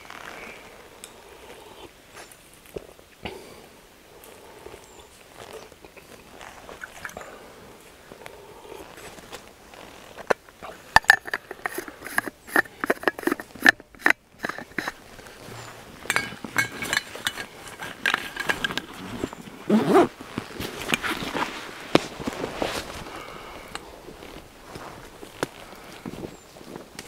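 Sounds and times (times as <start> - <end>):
leaves crunching: 15.0 - 27.0
footsteps on forest litter: 18.9 - 27.0.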